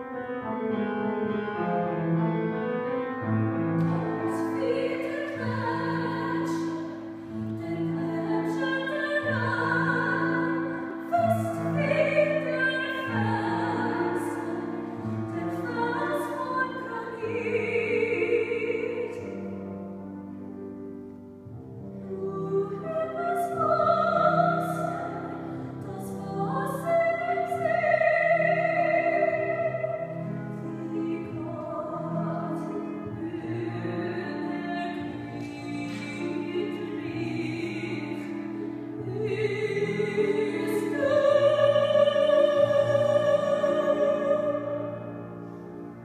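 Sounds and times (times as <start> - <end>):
grand piano: 0.0 - 46.0
woman singing operatically: 7.6 - 19.4, 22.1 - 30.0, 30.6 - 38.4.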